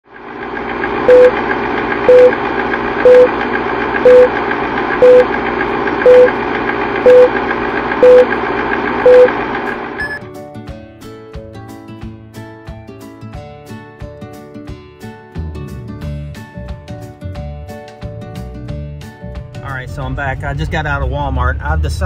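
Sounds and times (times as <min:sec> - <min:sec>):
film projector whirring: 0:00.1 - 0:10.2
higher tone: 0:01.1 - 0:01.4, 0:02.1 - 0:02.4, 0:03.0 - 0:03.4, 0:04.0 - 0:04.4, 0:05.0 - 0:05.4, 0:06.0 - 0:06.4, 0:07.0 - 0:08.4, 0:09.0 - 0:10.2
short beeps: 0:01.1 - 0:01.4, 0:02.1 - 0:02.4, 0:03.0 - 0:03.3, 0:04.0 - 0:04.3, 0:05.0 - 0:05.3, 0:06.0 - 0:06.3, 0:07.0 - 0:07.3, 0:08.0 - 0:08.3, 0:09.0 - 0:09.4, 0:10.0 - 0:10.2.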